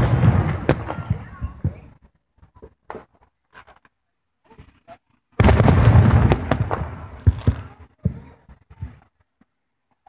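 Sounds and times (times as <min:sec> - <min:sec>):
firework boom: 0:00.0 - 0:01.9, 0:05.4 - 0:09.0
faint firework pops: 0:05.4 - 0:09.5.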